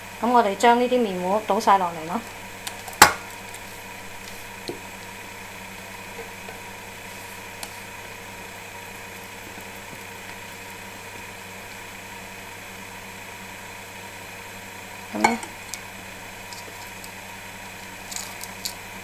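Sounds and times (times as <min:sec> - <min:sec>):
low hum and hiss: 0:00.0 - 0:19.0.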